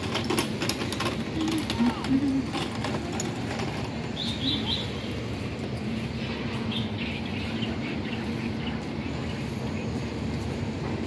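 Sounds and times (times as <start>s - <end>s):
road traffic hum: 0.0s - 11.0s
small bird chirping: 4.2s - 5.2s.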